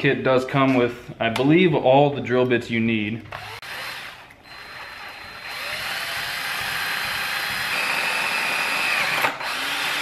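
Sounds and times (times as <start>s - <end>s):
electric drill running: 3.3s - 10.0s.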